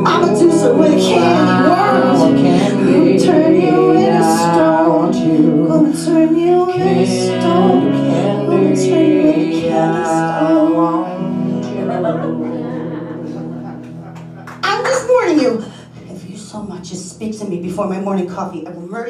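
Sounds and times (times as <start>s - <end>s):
woman and man singing: 0.0s - 13.6s
rock band playing: 6.7s - 15.0s.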